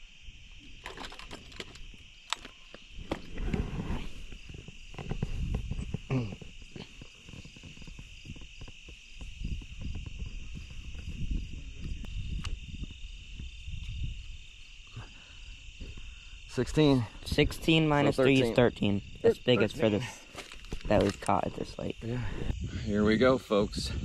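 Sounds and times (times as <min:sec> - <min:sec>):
crickets trilling: 0:00.0 - 0:24.0
low thumps and rustling of gear: 0:02.8 - 0:14.5.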